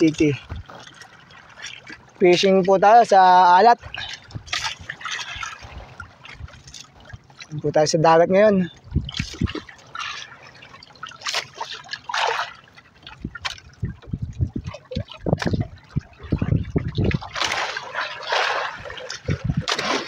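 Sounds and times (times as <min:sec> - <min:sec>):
water splashing against a boat: 0:00.0 - 0:20.0.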